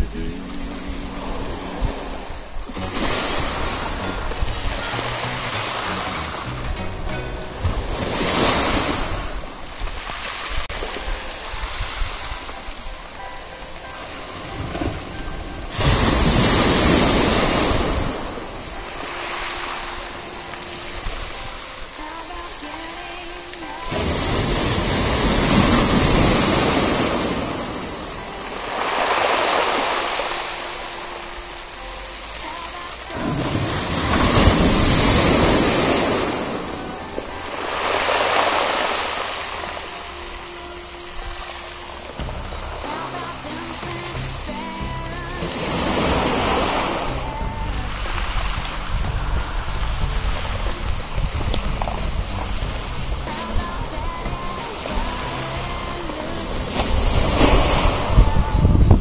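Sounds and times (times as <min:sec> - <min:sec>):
surf washing over pebbles: 0:00.0 - 0:42.2, 0:45.4 - 0:59.0
sea waves washing over pebbles: 0:14.1 - 0:40.8.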